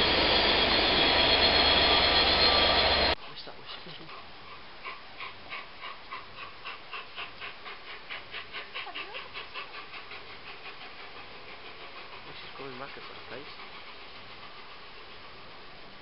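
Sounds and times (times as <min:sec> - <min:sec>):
steam locomotive exhaust beats: 0:04.5 - 0:16.0.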